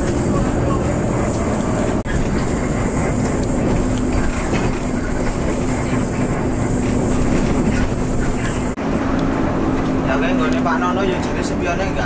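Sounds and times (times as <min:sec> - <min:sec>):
bus engine hum and road rumble: 0:00.0 - 0:12.0.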